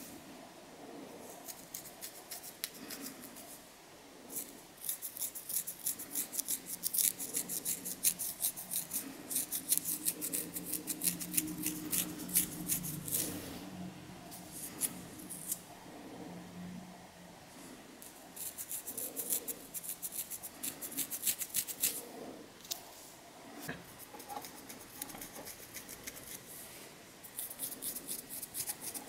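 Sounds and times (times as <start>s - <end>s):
fingernails scratching scalp: 4.4s - 13.4s, 18.4s - 22.0s, 24.0s - 26.4s, 27.3s - 29.0s.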